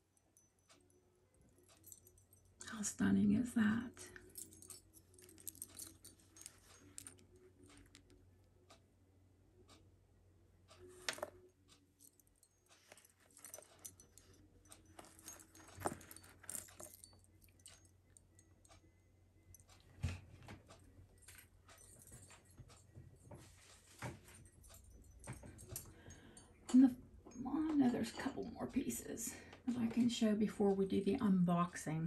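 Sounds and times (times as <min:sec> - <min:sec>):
jewelry clicking and rattling: 0:00.4 - 0:02.8, 0:03.9 - 0:08.2, 0:10.7 - 0:26.8.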